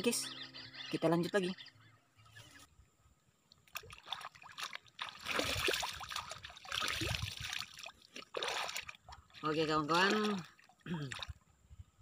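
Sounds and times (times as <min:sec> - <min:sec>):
water splashing and trickling: 0:03.4 - 0:11.7.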